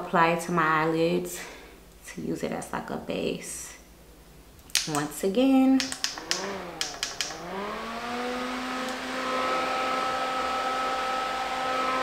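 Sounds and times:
fan clicks: 0:04.6 - 0:07.6
mini fan whirring: 0:05.7 - 0:12.0.

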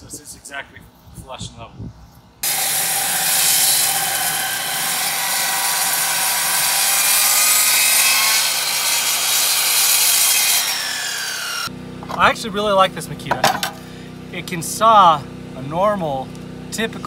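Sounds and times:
saw blade spinning down: 0:02.4 - 0:11.7
circular saw cutting wood: 0:02.4 - 0:12.3.

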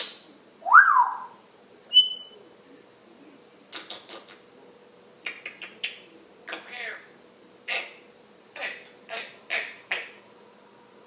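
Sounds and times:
parrot whistling: 0:00.6 - 0:02.4.

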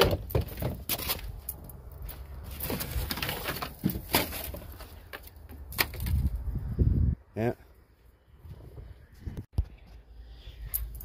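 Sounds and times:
wind rumbling on microphone: 0:05.8 - 0:07.5, 0:08.2 - 0:11.0.

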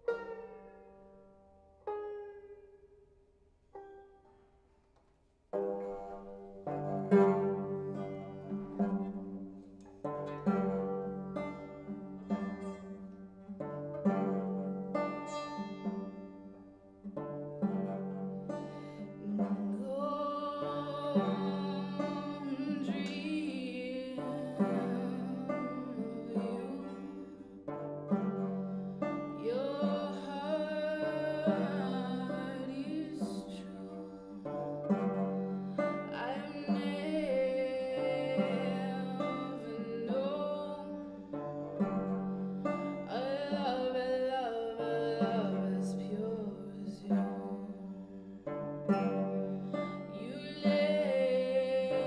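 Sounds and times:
open-back banjo: 0:00.0 - 0:52.0
woman singing: 0:18.7 - 0:27.7, 0:28.8 - 0:52.0.

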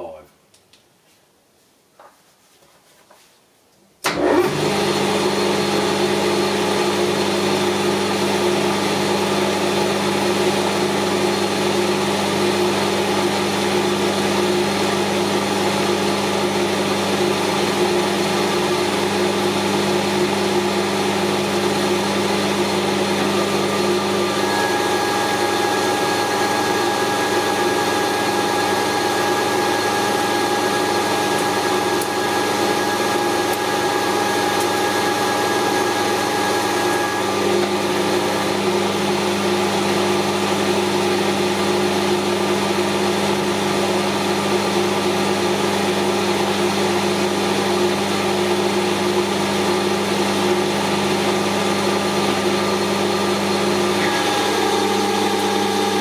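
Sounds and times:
metal lathe running: 0:24.0 - 0:37.9, 0:53.9 - 0:56.0.

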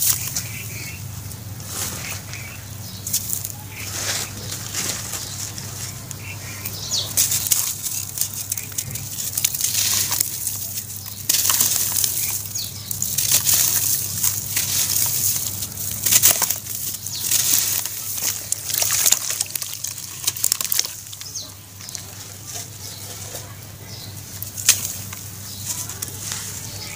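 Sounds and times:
wet crunching and sloshing: 0:00.0 - 0:26.9
crackles and splashes: 0:01.8 - 0:22.8.

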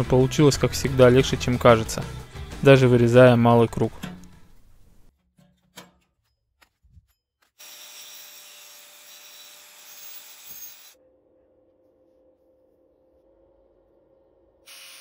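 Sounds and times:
thin steel disc clicking: 0:05.2 - 0:07.6.

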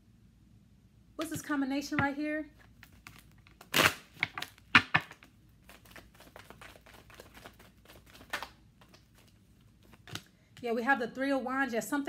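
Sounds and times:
cards shuffling and clicking: 0:01.2 - 0:10.3.

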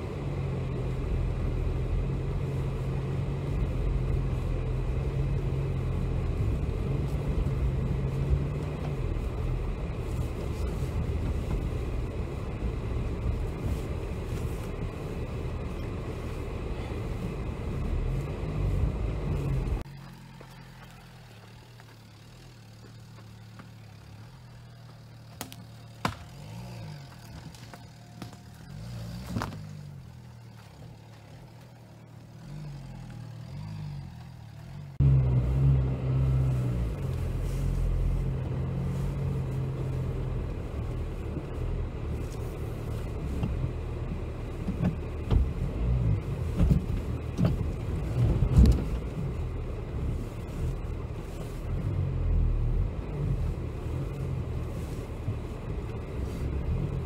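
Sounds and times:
car engine rumbling: 0:00.0 - 0:57.0
knocks and thumps from rough ground: 0:24.9 - 0:29.8, 0:46.4 - 0:49.2.

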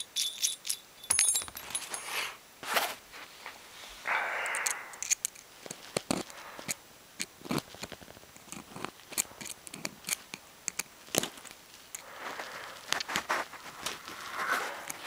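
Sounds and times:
metal clicks and scrapes: 0:07.2 - 0:12.0.

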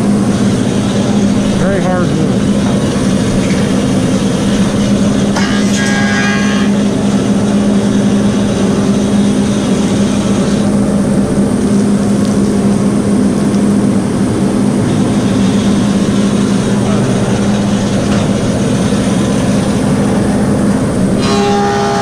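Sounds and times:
planer motor hum: 0:00.0 - 0:22.0
board being planed: 0:04.6 - 0:07.2, 0:21.2 - 0:22.0
high ringing: 0:21.1 - 0:22.0.

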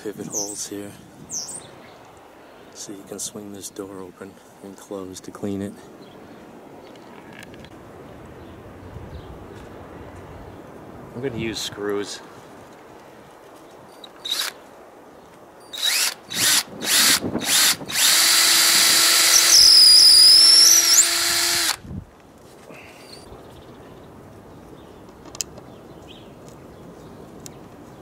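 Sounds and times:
cordless drill driving screw: 0:14.2 - 0:14.6, 0:15.7 - 0:21.8.

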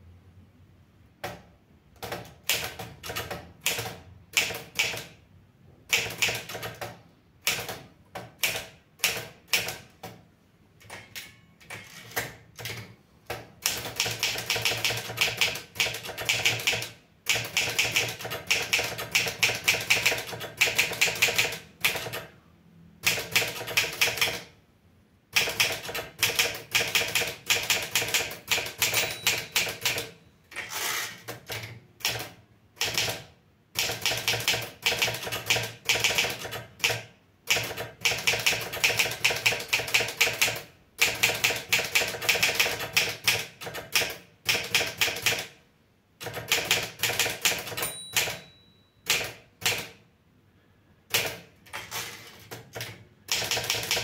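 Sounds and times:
typewriter keys clacking: 0:13.7 - 0:22.3, 0:25.4 - 0:33.2, 0:46.2 - 0:50.0.

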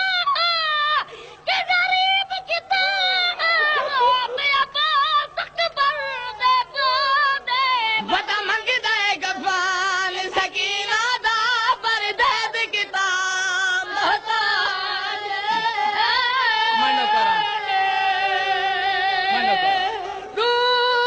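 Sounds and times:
voices singing lament over loudspeakers: 0:00.0 - 0:21.0.

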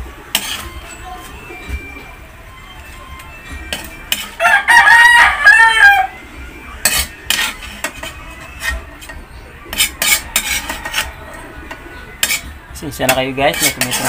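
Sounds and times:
metal spoon scraping wok: 0:00.3 - 0:01.5, 0:02.8 - 0:04.4, 0:06.8 - 0:14.0
rooster crowing: 0:04.4 - 0:06.3.

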